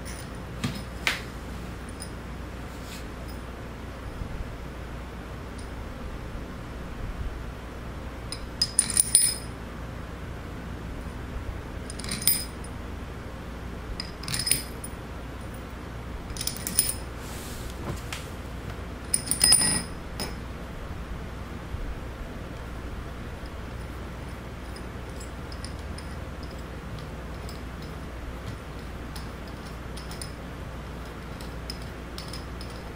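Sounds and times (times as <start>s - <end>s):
small metal parts clinking: 0.0s - 0.9s, 8.3s - 9.5s, 11.9s - 12.7s, 14.0s - 15.6s, 16.3s - 17.1s, 19.0s - 20.4s, 23.4s - 28.0s, 28.7s - 30.4s, 31.0s - 32.9s
steady low hum: 0.0s - 32.9s.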